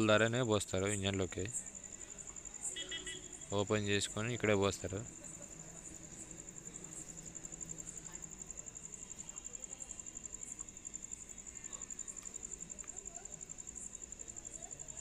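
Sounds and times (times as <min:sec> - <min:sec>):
high-pitched insect trill: 0:00.2 - 0:15.0
faint clicks: 0:12.1 - 0:13.0.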